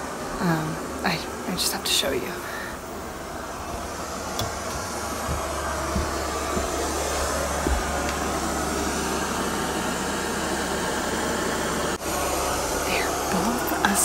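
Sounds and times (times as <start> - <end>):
white noise machine hissing: 0.0 - 14.0
footsteps on carpeted stairs: 2.9 - 9.5.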